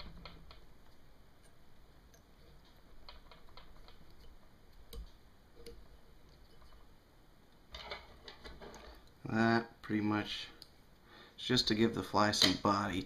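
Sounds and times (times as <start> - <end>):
faint clicks and rustles: 0.0 - 9.3.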